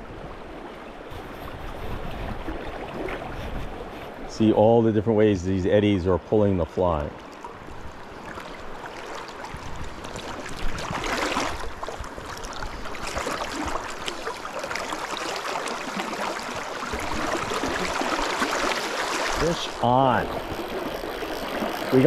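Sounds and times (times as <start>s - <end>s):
creek water rushing over gravel: 6.6s - 22.0s.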